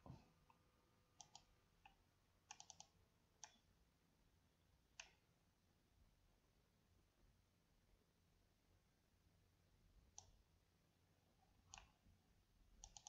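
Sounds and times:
faint computer mouse clicks: 1.2 - 3.6.

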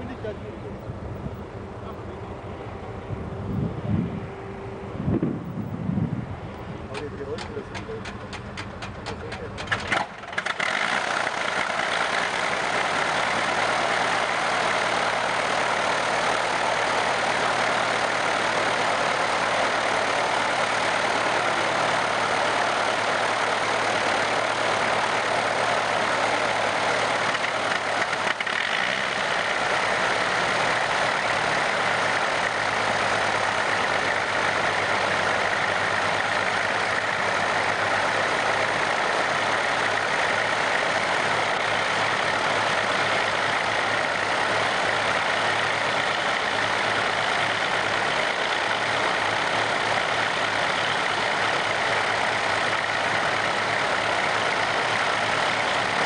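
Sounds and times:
aircraft engines running: 0.0 - 56.0.

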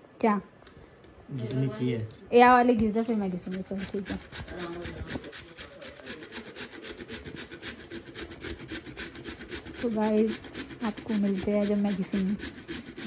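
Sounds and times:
carrots grated on metal grater: 2.9 - 13.0.

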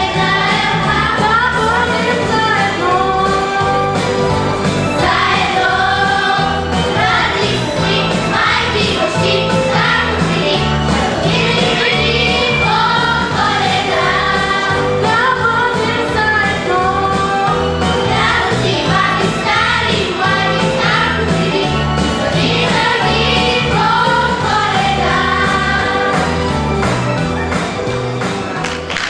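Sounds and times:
girls choir singing: 0.0 - 4.2, 4.8 - 26.8
instrumental accompaniment with bass: 0.0 - 29.0.

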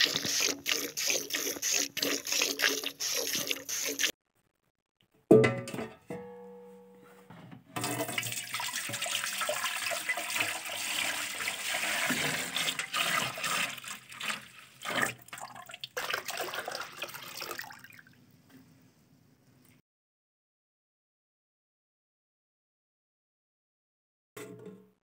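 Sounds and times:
milk pouring into metal pot: 0.0 - 4.1, 7.9 - 18.1.

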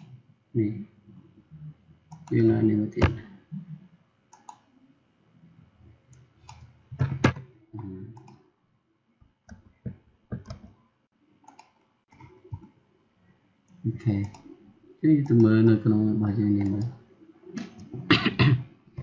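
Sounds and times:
computer mouse clicking: 2.1 - 3.2, 4.3 - 4.7, 6.1 - 8.4, 10.4 - 10.8, 11.4 - 12.8, 13.7 - 14.6, 16.4 - 18.0.

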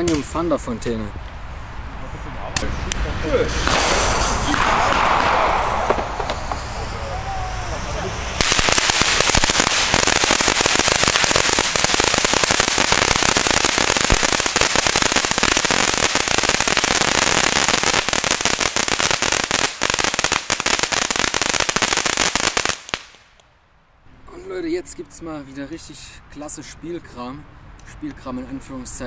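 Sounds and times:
hissing spray of sparks: 3.5 - 23.2
rapid firework crackle: 3.5 - 23.4.

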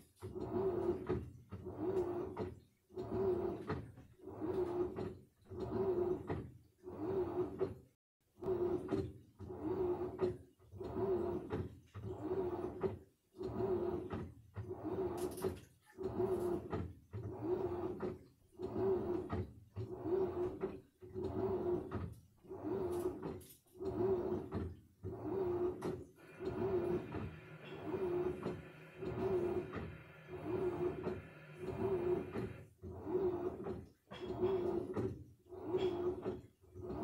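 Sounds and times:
washing machine drum turning: 16.0 - 37.0.

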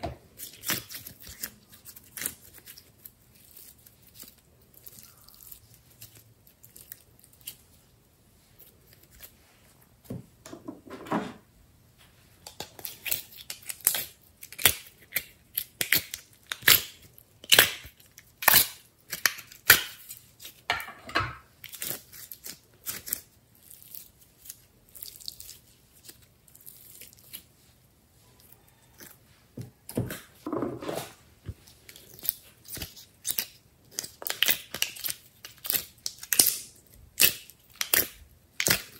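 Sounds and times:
slime sticky crackles and pops: 32.2 - 38.9.

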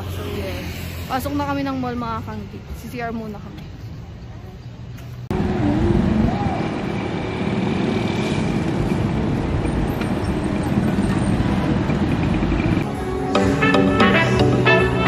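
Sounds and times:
road traffic rumble: 0.0 - 15.0
music: 12.8 - 15.0.

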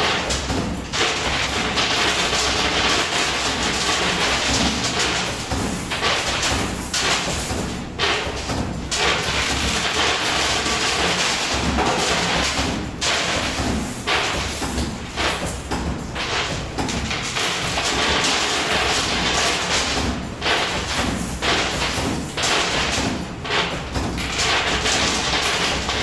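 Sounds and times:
metal coins clattering: 1.0 - 8.2, 8.9 - 11.5, 12.3 - 16.5, 17.1 - 19.9, 24.2 - 26.0.

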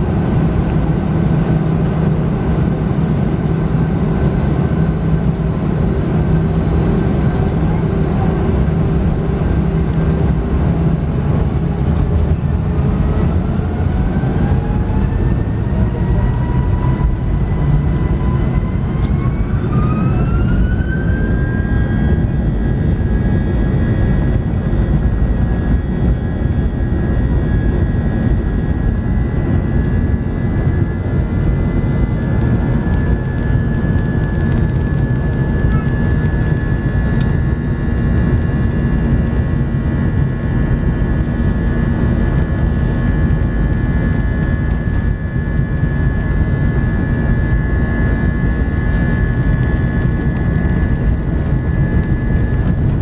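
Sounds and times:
jet engine whine rising: 0.0 - 53.0
jet engines rumbling: 0.0 - 53.0.

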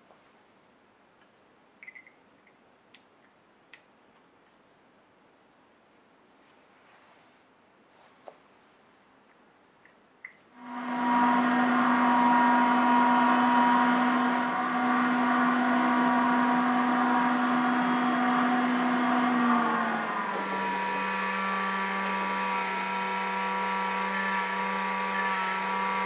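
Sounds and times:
bench grinder grinding metal: 10.6 - 26.0
rotary tool whine: 10.6 - 26.0.

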